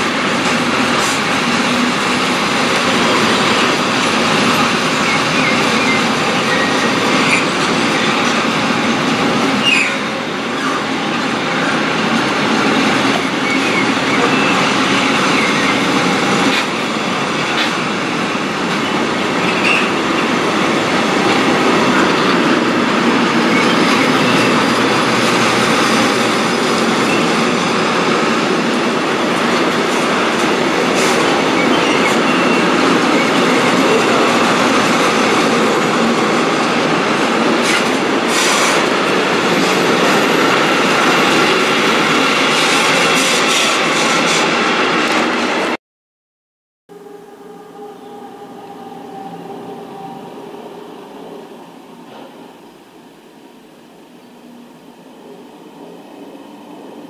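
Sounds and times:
train wagons clanking: 0.0s - 45.3s
train wheels rumbling on rail: 0.0s - 45.8s, 47.0s - 57.0s.

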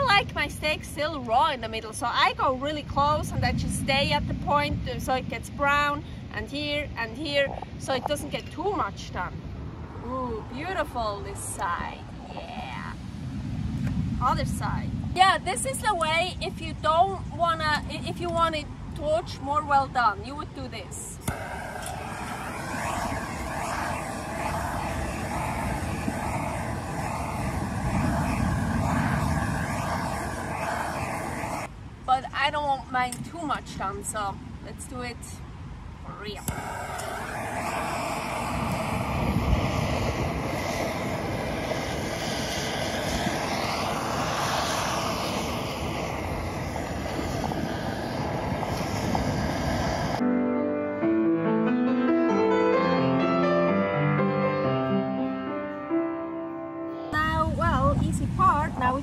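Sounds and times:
gas torch flame rushing: 21.0s - 31.7s, 36.2s - 50.2s.

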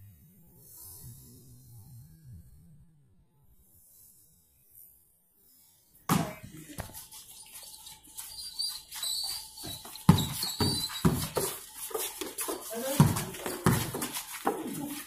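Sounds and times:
basketball bouncing on concrete: 6.1s - 7.0s, 9.6s - 15.0s
high squeaks: 6.8s - 15.0s.

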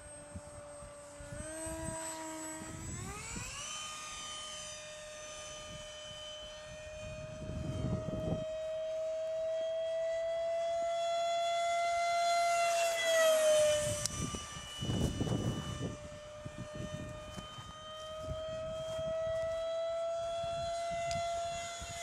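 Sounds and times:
model jet whining: 0.0s - 22.0s.

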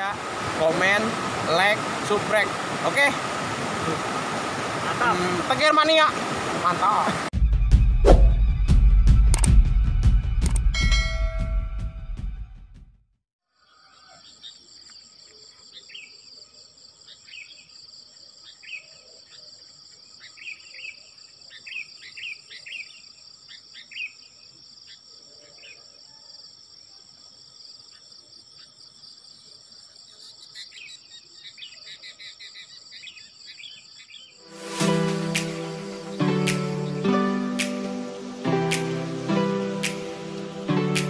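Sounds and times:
insects trilling: 13.5s - 34.6s
bird chirps: 13.6s - 26.4s.

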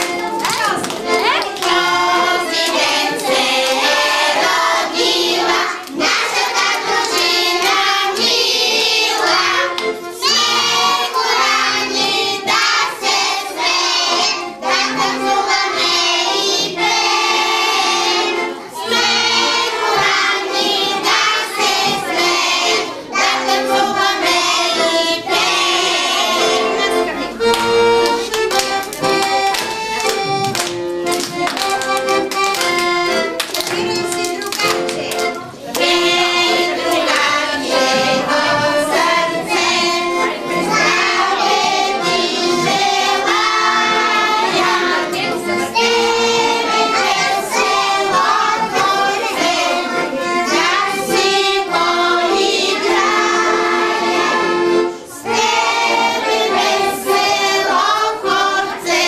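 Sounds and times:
hand claps: 0.0s - 4.2s, 5.5s - 8.4s, 27.4s - 36.0s
children singing: 0.0s - 33.3s, 33.9s - 59.0s
piano accordion: 0.0s - 59.0s.

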